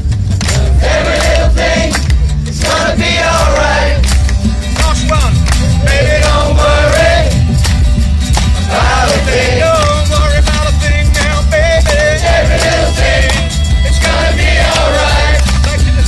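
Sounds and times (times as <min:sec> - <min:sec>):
acoustic guitars strumming: 0:00.0 - 0:16.0
man singing: 0:09.3 - 0:16.0.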